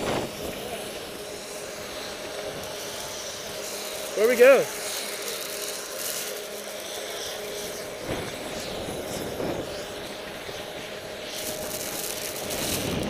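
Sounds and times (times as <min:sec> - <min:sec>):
wind on microphone: 0:00.0 - 0:01.1, 0:07.9 - 0:13.0
skis sliding over snow: 0:00.0 - 0:13.0.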